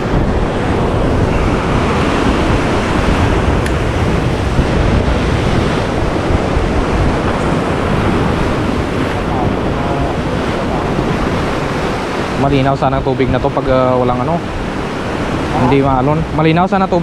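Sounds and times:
surf breaking on rocks: 0.0 - 17.0
wind buffeting microphone: 0.0 - 17.0.

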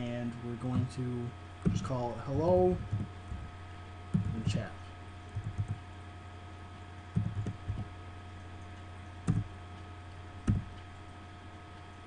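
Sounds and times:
low electrical hum: 0.0 - 12.0
keyboard keystrokes: 5.4 - 5.8, 7.2 - 7.9, 9.3 - 9.5.

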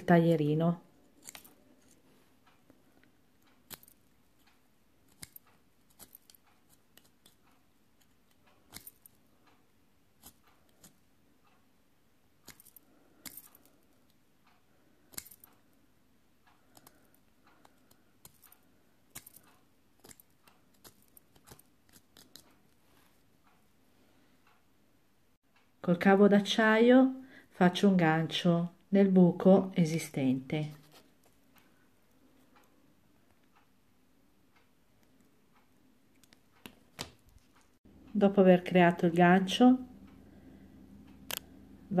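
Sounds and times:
craft knife clicking and scraping: 1.1 - 2.0, 5.1 - 7.4, 8.0 - 9.2, 10.2 - 11.0, 12.4 - 13.9, 15.0 - 15.6, 16.6 - 22.6.

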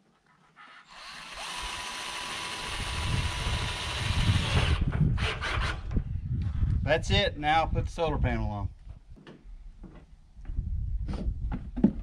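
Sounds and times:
cordless drill driving screw into metal: 0.9 - 5.9.

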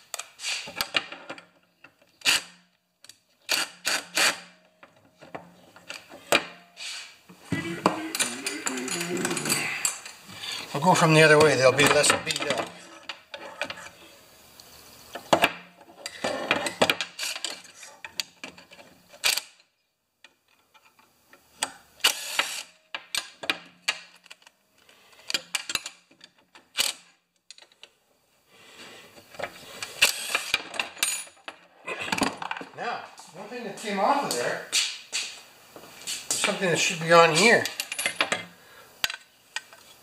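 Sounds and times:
metal parts clinking on workbench: 7.8 - 10.2, 37.3 - 38.4.

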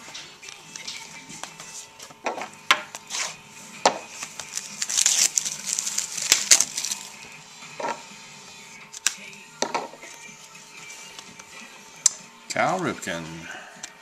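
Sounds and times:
foil wrapper tearing and crinkling: 4.1 - 7.2.

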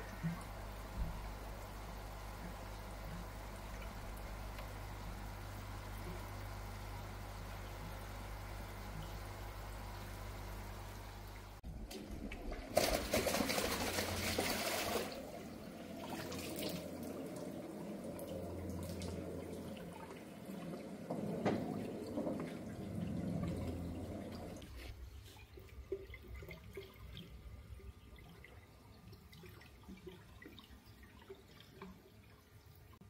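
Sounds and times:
trickling water: 0.0 - 33.0
pond water splashing: 11.6 - 21.1.

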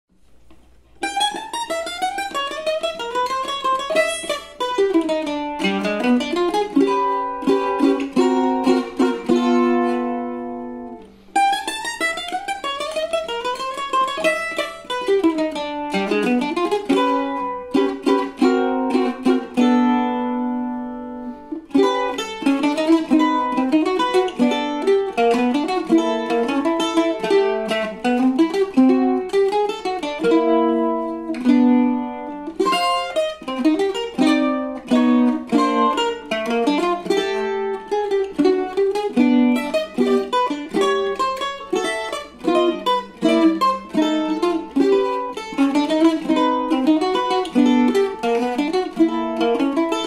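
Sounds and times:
mandolin playing a melody: 0.1 - 50.0.

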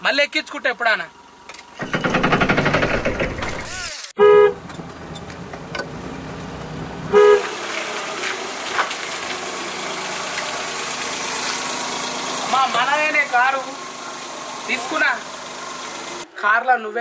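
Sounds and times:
car horn beeps: 4.2 - 4.7, 7.1 - 7.5
car engine running: 4.6 - 16.2.

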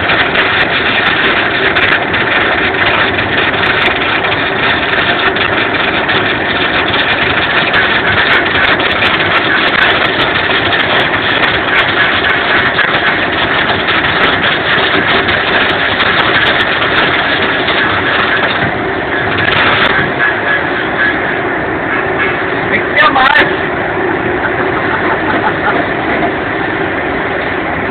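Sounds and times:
arc welding crackle and sizzle: 0.0 - 21.3.

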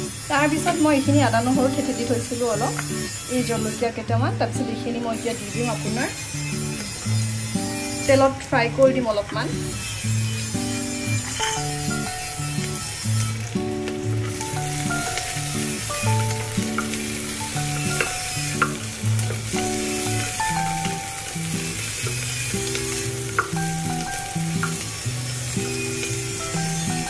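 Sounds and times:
background music: 0.0 - 27.0
onions sizzling in hot oil: 0.0 - 27.0
spatula tapping a pot: 16.4 - 17.1.

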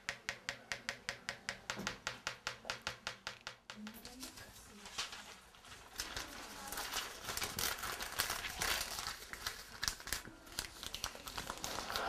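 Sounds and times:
material rustling and crinkling: 4.0 - 12.0.

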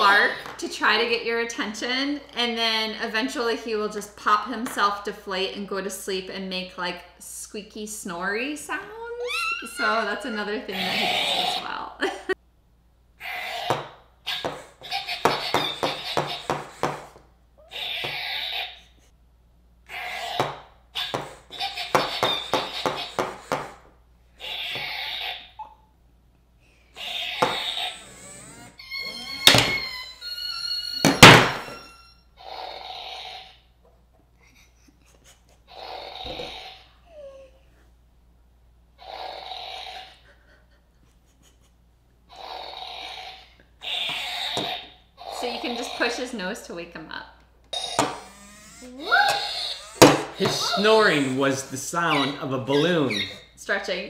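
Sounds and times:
toy squeaky snoring: 9.2 - 11.7, 13.2 - 16.5, 17.6 - 19.1, 19.9 - 23.5, 24.3 - 25.9, 27.0 - 33.8, 35.7 - 37.6, 39.0 - 40.3, 42.3 - 46.4, 47.7 - 53.6
electronic toy dog sounds: 27.0 - 33.6, 47.8 - 53.6.

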